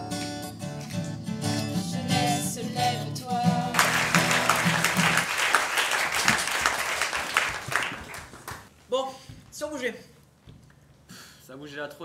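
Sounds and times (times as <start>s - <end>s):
acoustic guitars playing: 0.0s - 5.4s
audience applause: 3.7s - 8.7s.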